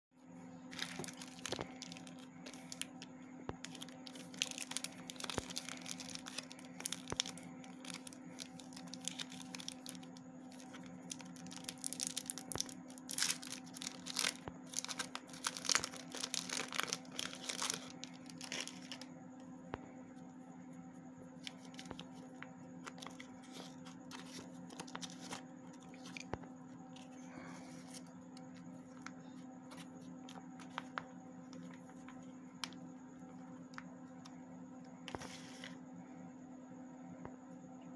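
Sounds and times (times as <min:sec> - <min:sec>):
low steady hum: 0:00.2 - 0:37.9
wrapper tearing: 0:00.7 - 0:02.9, 0:03.7 - 0:19.0
foil crinkling: 0:00.7 - 0:03.0, 0:03.6 - 0:19.1.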